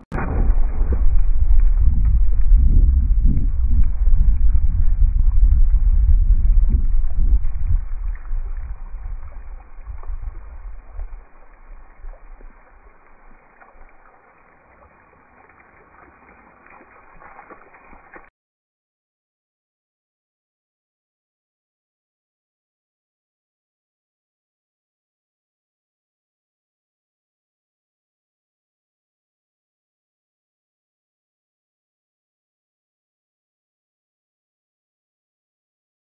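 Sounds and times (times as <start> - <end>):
water splashing: 0.0 - 18.3
slowed-down bullet impact rumble: 0.1 - 14.1.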